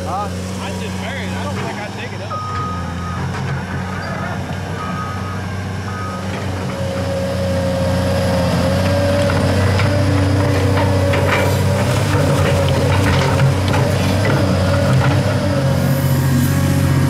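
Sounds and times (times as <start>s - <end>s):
excavator diesel engine: 0.0s - 17.0s
hydraulic whine: 1.4s - 17.0s
warning beeper: 4.0s - 6.3s
bucket scraping and knocking dirt: 9.2s - 15.3s.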